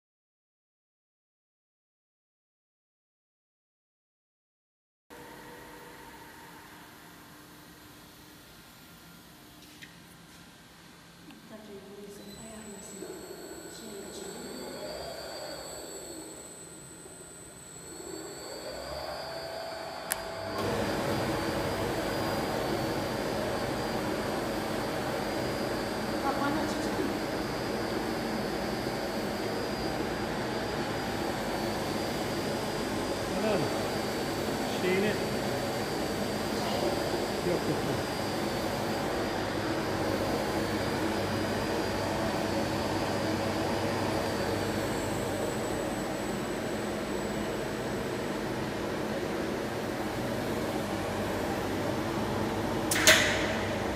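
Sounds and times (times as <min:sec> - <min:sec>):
faint high whine: 0:05.1 - 0:53.9
faint machine hum: 0:05.1 - 0:53.9
air blower rushing: 0:18.5 - 0:53.9.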